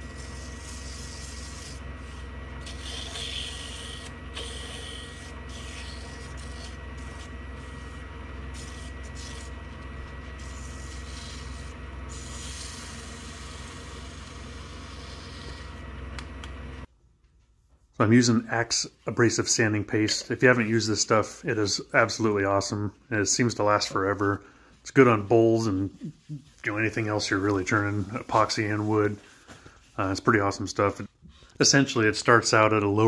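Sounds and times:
sandpaper sanding spinning wood: 0.0 - 15.9, 25.6 - 29.2
lathe motor humming: 0.0 - 16.9.

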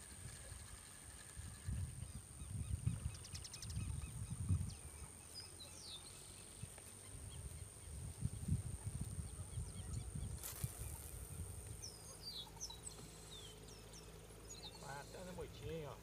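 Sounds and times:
wind buffeting microphone: 0.0 - 5.1, 6.6 - 12.0
faint bird chirps: 0.3 - 15.8.

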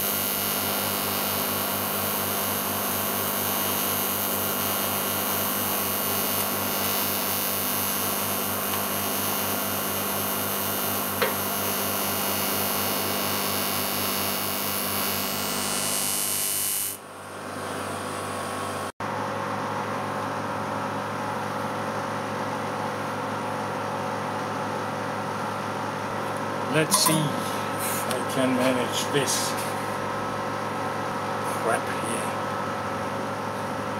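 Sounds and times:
machine hum: 0.0 - 18.4, 25.5 - 33.9
welding arc buzzing and hissing: 0.0 - 18.9, 26.7 - 30.6.

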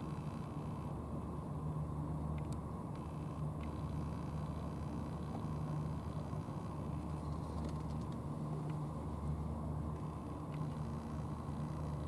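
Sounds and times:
faint ticks: 2.3 - 8.8, 9.9 - 12.0.

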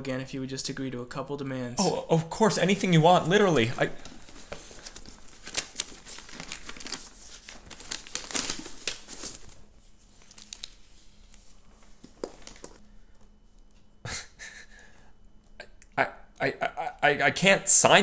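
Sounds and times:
paper rustling: 3.2 - 13.0.

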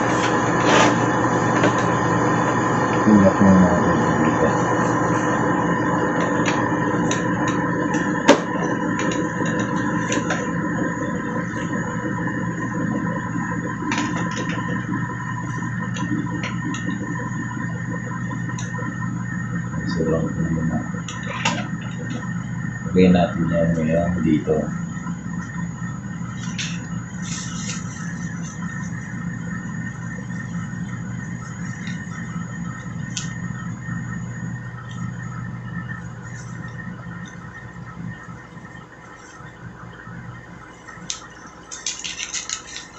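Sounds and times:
steady low hum: 0.0 - 42.9.

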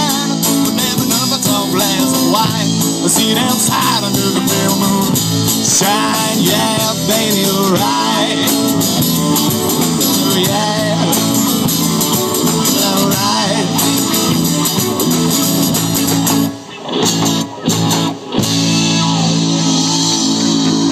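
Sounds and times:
electric guitar: 0.0 - 20.9
live rock band playing: 0.0 - 20.9.

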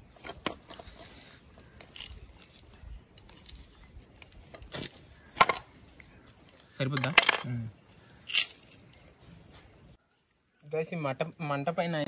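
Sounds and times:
insects chirring: 0.0 - 12.0
leaves rustling in bamboo tube: 0.6 - 5.2.

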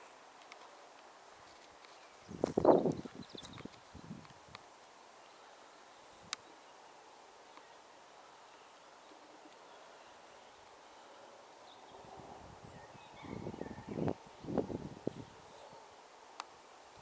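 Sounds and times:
faint bird chirps: 5.0 - 16.0.

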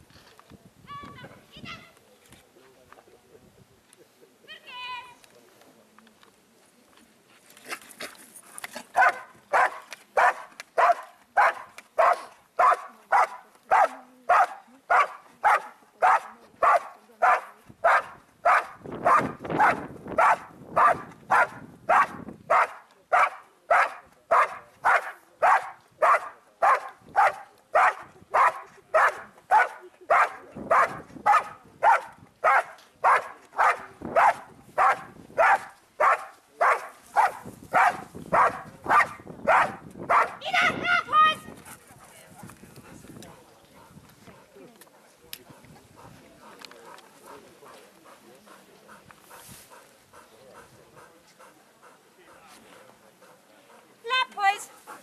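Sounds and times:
dog barking: 9.0 - 40.4.

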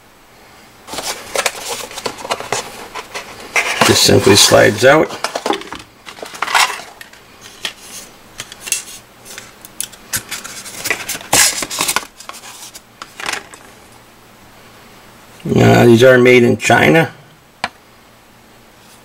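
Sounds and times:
cardboard box rustling: 0.9 - 7.0.

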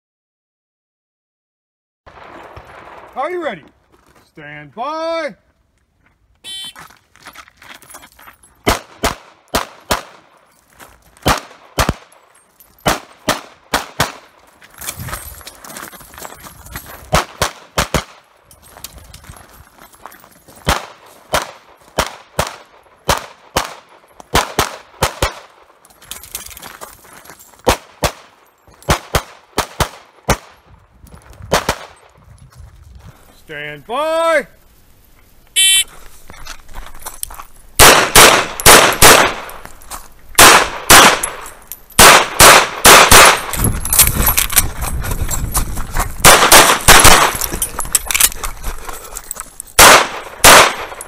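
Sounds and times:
rapid pistol fire: 37.8 - 39.5, 40.4 - 41.4, 42.0 - 43.5, 46.2 - 47.4, 49.8 - 51.0.

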